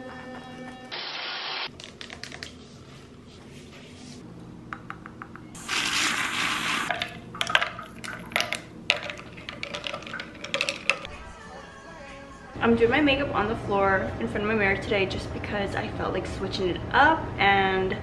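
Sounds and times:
shower water rushing: 5.6 - 6.9
ice cubes clinking in a glass: 6.9 - 11.1.

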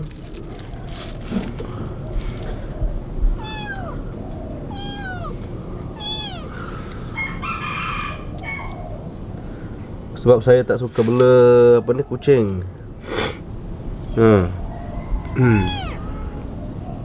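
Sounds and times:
kitten meowing: 3.4 - 4.1, 4.7 - 5.4, 6.0 - 6.6, 15.4 - 16.5.

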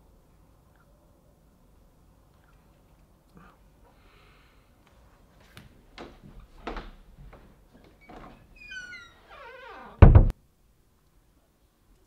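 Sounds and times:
loud thud: 10.0 - 10.4.

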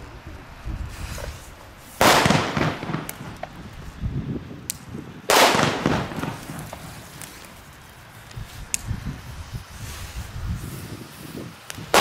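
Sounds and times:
firecracker bangs: 2.0 - 3.7, 5.3 - 7.4.

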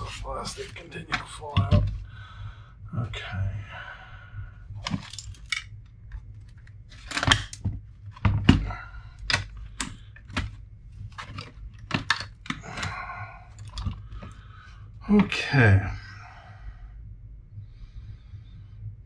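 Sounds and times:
plastic parts clicking and knocking: 0.6 - 2.0, 4.8 - 14.4, 15.1 - 15.4.

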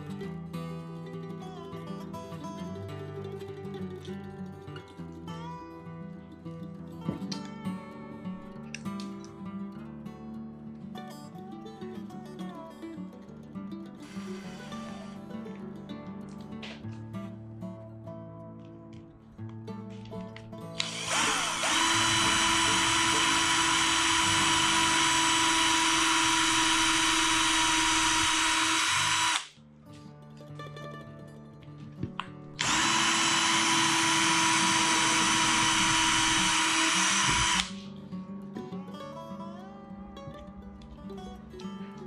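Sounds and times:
cordless drill drilling: 14.0 - 15.1, 20.8 - 29.6, 32.6 - 37.8.

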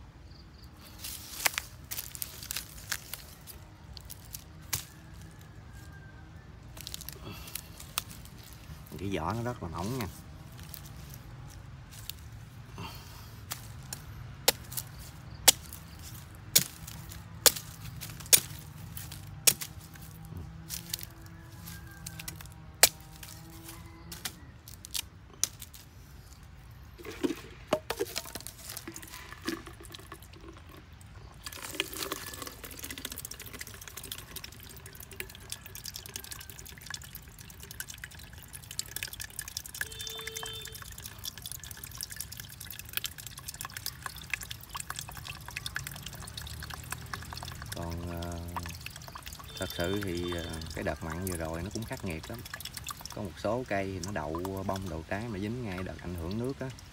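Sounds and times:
water pouring into plastic jug: 0.8 - 56.9
blade chopping coconut husk: 13.5 - 20.0.

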